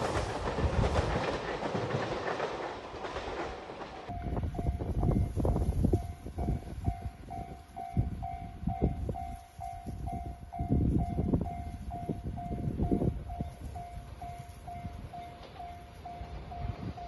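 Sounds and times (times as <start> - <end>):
level-crossing warning bell: 4.1 - 17.0.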